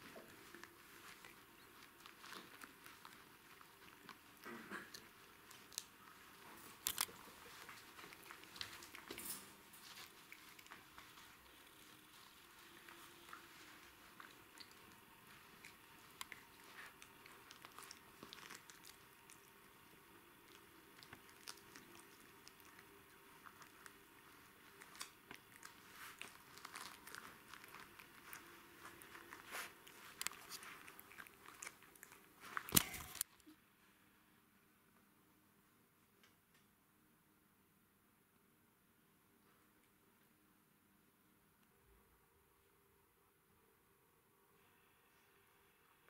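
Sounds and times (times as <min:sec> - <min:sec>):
puppies gnawing on chew toy: 0:00.0 - 0:33.3.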